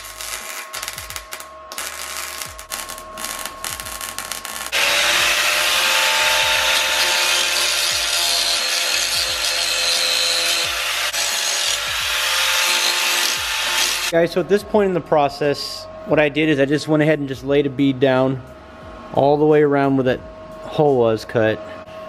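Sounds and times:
angle grinder grinding: 0.0s - 14.1s
welder crackling: 0.0s - 14.1s.

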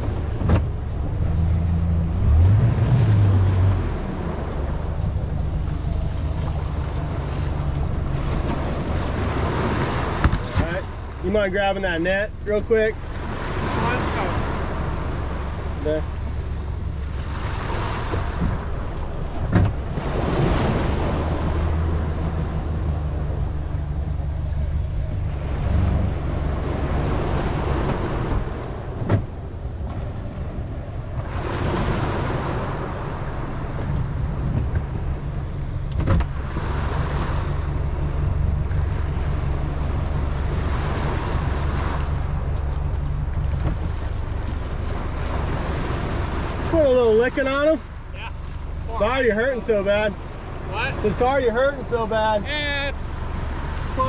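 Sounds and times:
small waves washing around hull: 0.0s - 54.0s
steady low rumble: 0.0s - 54.0s
sharp knocks on boat: 0.3s - 0.8s, 9.8s - 11.2s, 17.5s - 20.1s, 27.7s - 30.1s, 33.7s - 35.0s, 35.8s - 37.2s, 40.8s - 45.0s.

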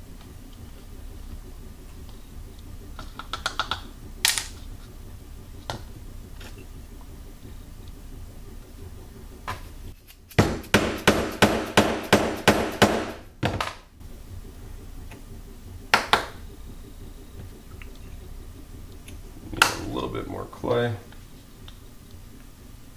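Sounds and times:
mallet knocking on wooden rammer: 10.4s - 13.7s.

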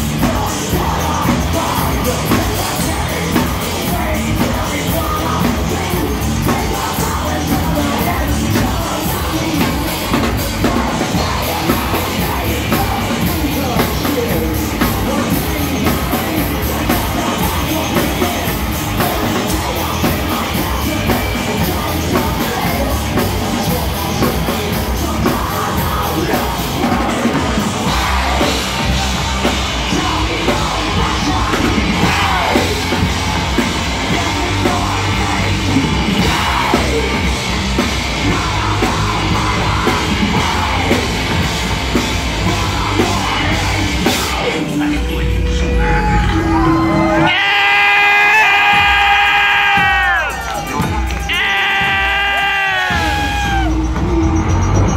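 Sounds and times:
distorted electric guitar: 0.0s - 54.9s
pounding drum kit: 0.0s - 54.9s
person yelling vocals: 51.2s - 53.8s.

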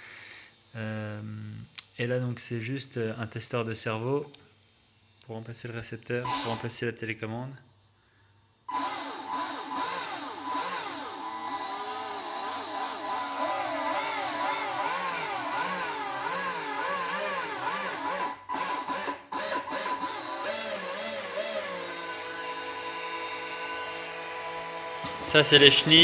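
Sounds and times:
electric motors whining: 6.3s - 6.8s, 8.7s - 26.0s.

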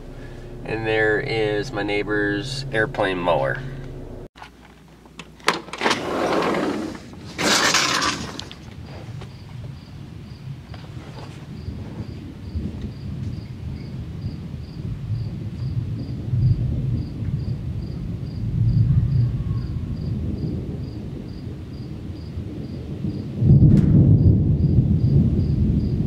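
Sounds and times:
distant thunder rumbling: 0.0s - 4.3s, 8.8s - 26.0s
crickets chirping: 8.4s - 23.5s, 24.2s - 26.0s
sharp thunder peal: 11.6s - 26.0s.

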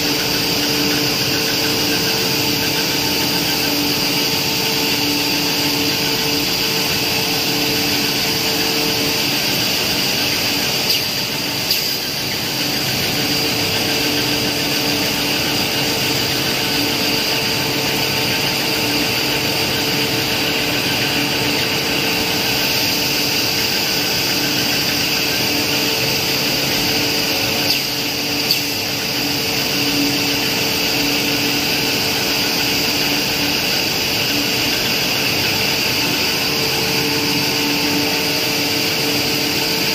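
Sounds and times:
machine hum and hiss: 0.0s - 39.9s
steady machine tones: 0.0s - 39.9s.

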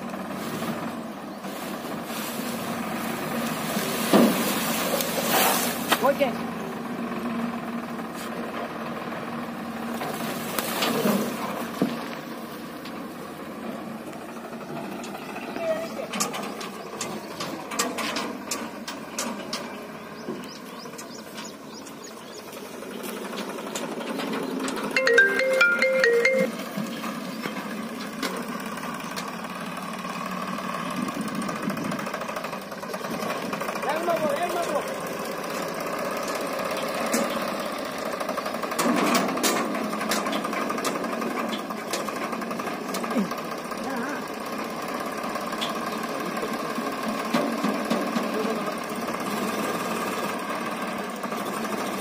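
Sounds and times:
tractor engine running: 0.0s - 52.0s
trolley knocking and rattling: 1.5s - 6.4s, 14.8s - 22.1s, 38.2s - 43.5s.

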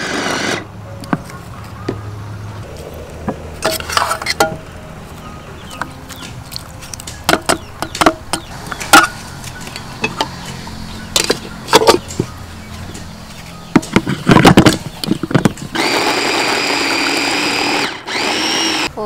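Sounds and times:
food chopper motor whine: 0.0s - 0.7s, 15.7s - 18.9s.

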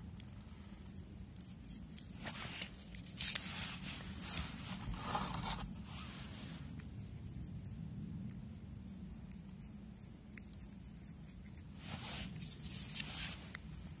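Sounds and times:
packaging scraping and rustling: 2.0s - 6.6s.

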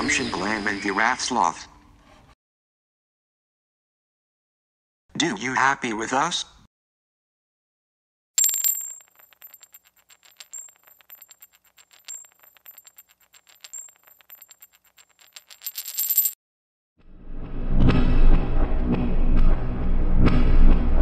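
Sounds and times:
metal cylinder clinking on floor: 8.4s - 16.4s
metal cylinder rolling and rattling: 8.4s - 16.4s.

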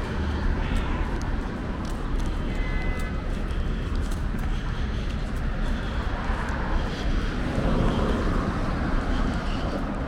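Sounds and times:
passing vehicles rushing: 0.0s - 10.0s.

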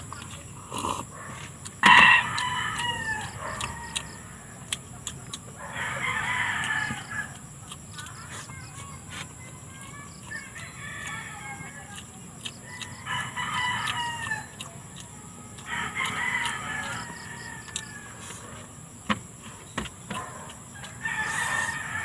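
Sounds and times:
rooster crowing: 1.8s - 4.8s, 5.6s - 7.4s, 10.3s - 12.0s, 12.6s - 14.6s, 15.6s - 18.6s, 20.7s - 22.0s.

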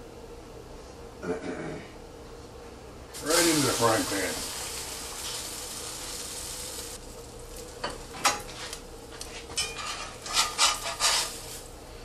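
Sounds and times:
bread frying in a pan: 3.1s - 12.0s.

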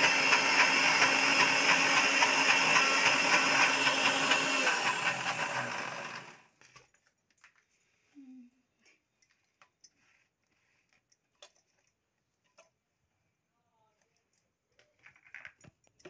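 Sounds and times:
electric grinder motor running: 0.0s - 6.5s.

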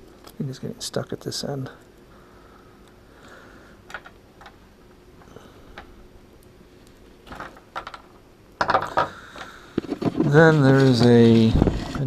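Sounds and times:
soft rustling of cable: 8.7s - 12.0s.

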